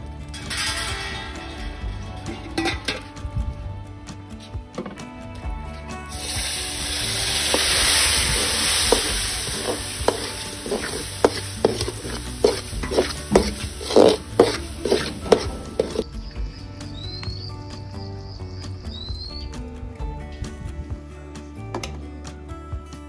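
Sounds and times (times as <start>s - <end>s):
milk sizzling in hot pan: 6.1s - 16.1s
ladle scraping pan: 6.2s - 16.1s.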